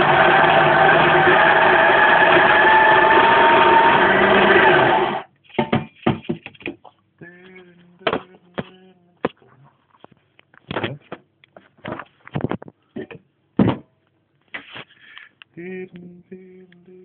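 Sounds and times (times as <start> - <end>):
coffee grinder running: 0.0 - 5.2.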